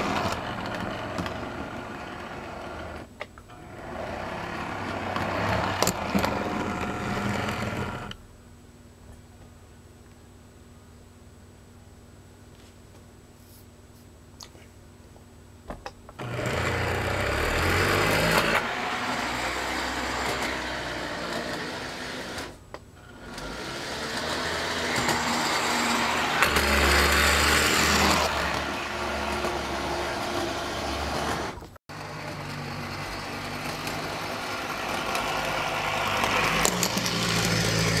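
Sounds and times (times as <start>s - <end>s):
model train motor whirring: 0.0s - 8.2s, 16.2s - 38.0s
wheels rolling on rails: 0.0s - 8.2s, 16.2s - 38.0s.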